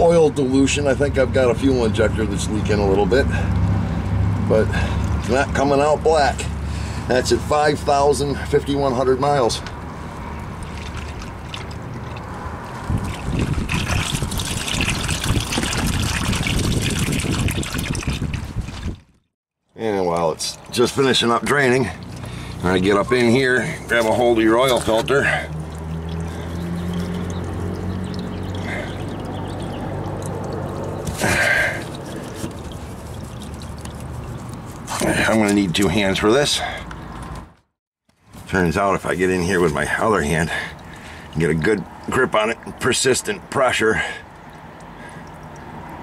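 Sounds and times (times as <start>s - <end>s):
oil trickling into pan: 10.0s - 19.0s, 20.6s - 34.9s, 44.0s - 46.0s.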